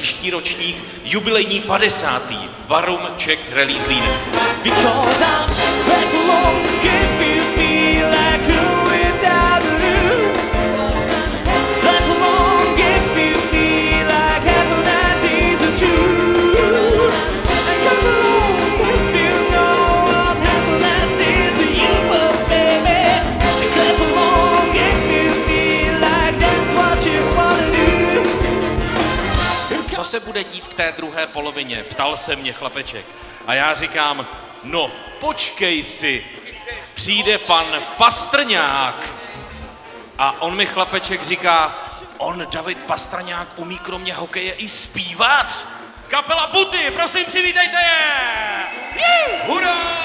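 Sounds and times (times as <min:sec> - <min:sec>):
big band playing: 0:03.5 - 0:30.8, 0:33.2 - 0:50.0
saxophones: 0:03.7 - 0:30.0
man singing: 0:03.8 - 0:28.6
steady drum beat: 0:03.8 - 0:30.0.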